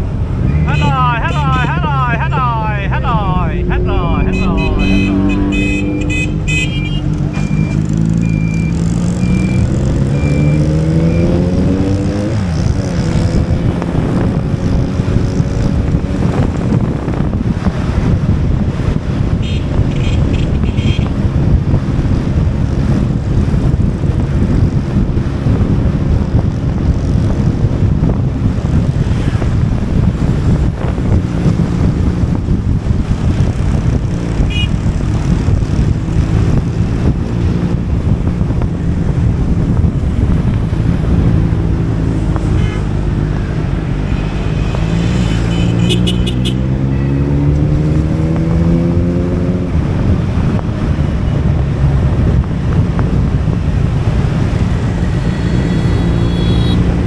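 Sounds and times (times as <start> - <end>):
wind noise on microphone: 0.0 - 57.0
motorcycle engine: 0.4 - 16.8, 54.4 - 57.0.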